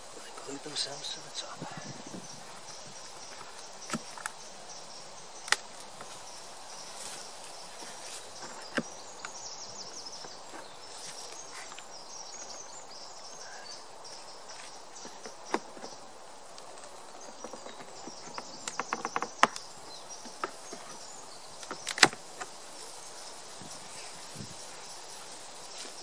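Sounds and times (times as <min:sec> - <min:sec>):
outdoor background noise: 0:00.0 - 0:26.0
hive tool prying clicks: 0:05.4 - 0:06.0, 0:17.4 - 0:20.9, 0:21.6 - 0:22.5.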